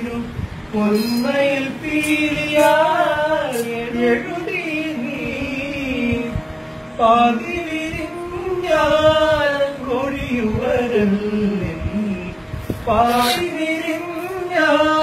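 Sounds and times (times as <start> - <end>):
man singing unaccompanied: 0.0 - 15.0.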